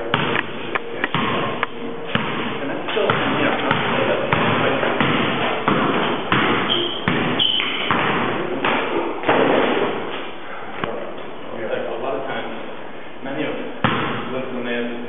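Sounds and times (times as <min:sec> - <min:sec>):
basketball bouncing on concrete: 0:00.0 - 0:09.4, 0:13.8 - 0:14.2
sneaker squeaks: 0:04.9 - 0:08.0.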